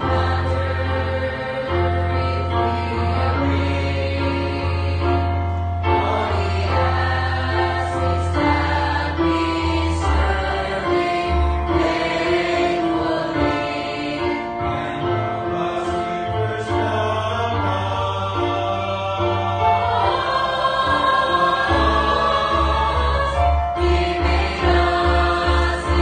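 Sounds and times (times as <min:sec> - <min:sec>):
choir singing a hymn: 0:00.0 - 0:26.0
low bass accompaniment: 0:14.6 - 0:26.0.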